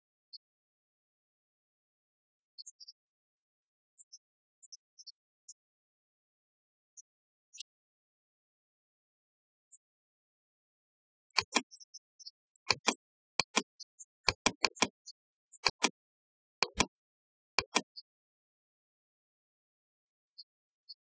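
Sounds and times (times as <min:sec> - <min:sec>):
computer mouse clicks: 0:11.3 - 0:11.7, 0:12.6 - 0:15.0, 0:15.6 - 0:16.0, 0:16.6 - 0:17.0, 0:17.6 - 0:18.0.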